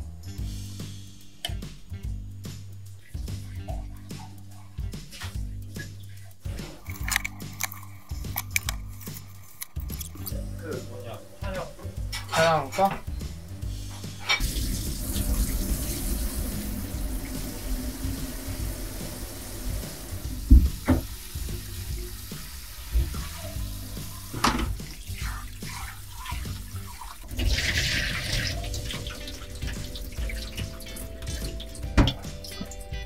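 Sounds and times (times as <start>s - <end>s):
water running into metal sink: 14.1s - 32.8s
water pouring with hissing splash: 14.2s - 32.4s.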